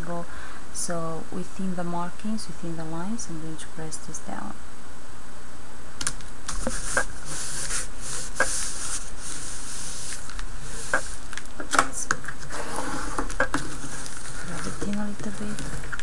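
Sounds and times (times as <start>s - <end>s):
card stock rustling: 6.1s - 16.0s.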